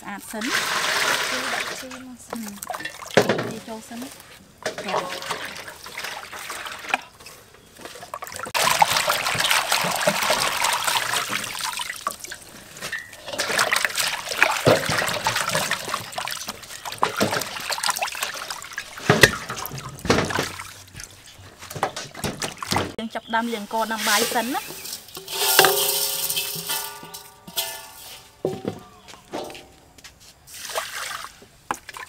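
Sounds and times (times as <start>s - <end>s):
water sloshing and splashing: 0.2s - 29.8s, 30.5s - 32.0s.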